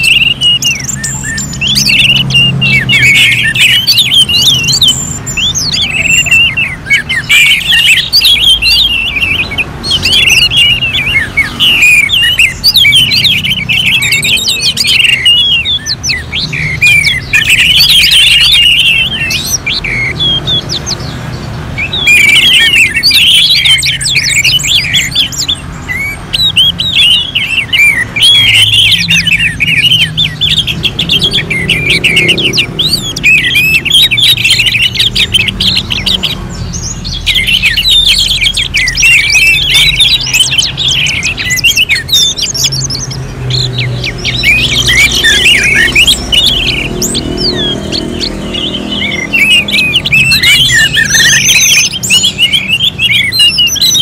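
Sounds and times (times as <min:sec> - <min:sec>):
thrushes twittering chorus: 0:00.0 - 0:54.0.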